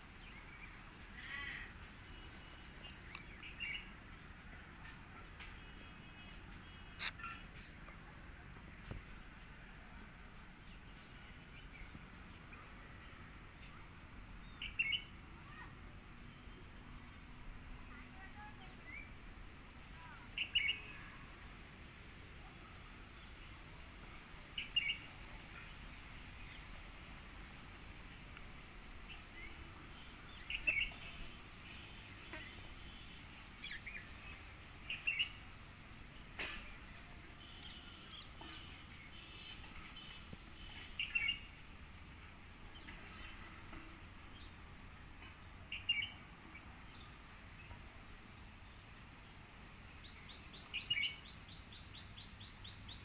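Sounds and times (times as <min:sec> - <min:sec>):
bird sharp call: 0:07.0 - 0:07.4.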